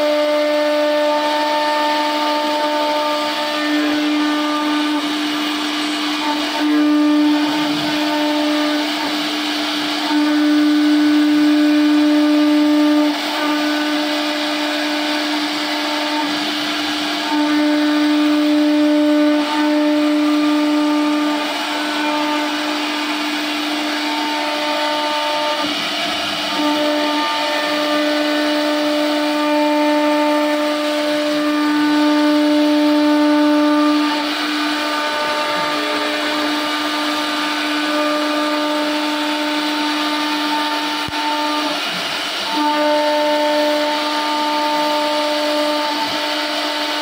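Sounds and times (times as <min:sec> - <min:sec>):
bit rasping through wood: 0:00.0 - 0:25.8
router spindle high whine: 0:00.0 - 0:47.0.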